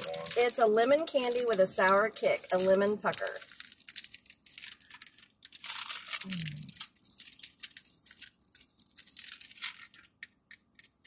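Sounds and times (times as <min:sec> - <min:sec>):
plastic wrapper crinkling: 0:00.0 - 0:11.0
person humming: 0:06.2 - 0:06.8.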